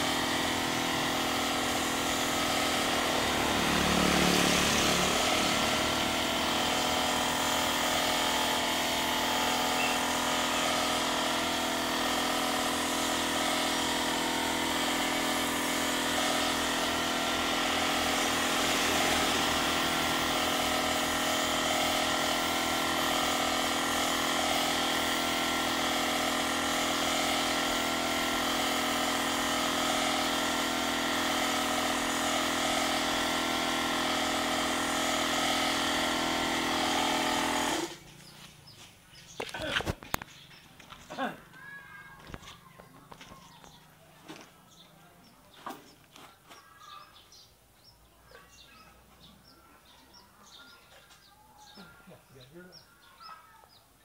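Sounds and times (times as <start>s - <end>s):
air compressor motor humming: 0.0s - 40.2s.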